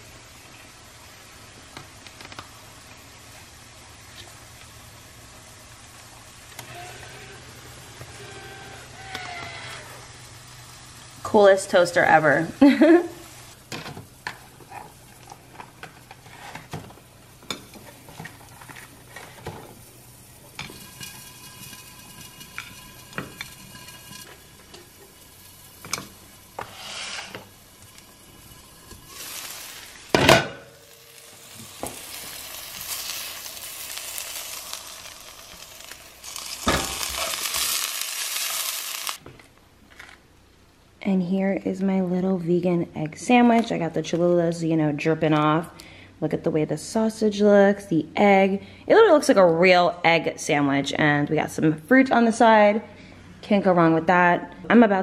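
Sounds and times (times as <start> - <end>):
food sizzling in frying pan: 0.0 - 39.2
utensils scraping on plate and pan: 13.7 - 19.9, 20.5 - 34.4, 36.2 - 39.0.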